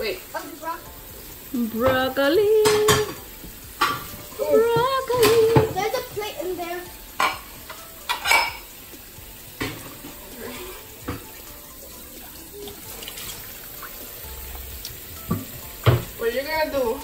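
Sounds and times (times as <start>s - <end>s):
running water hiss: 0.0s - 17.0s
dishes clinking: 1.8s - 6.1s, 7.1s - 11.4s, 15.2s - 16.2s.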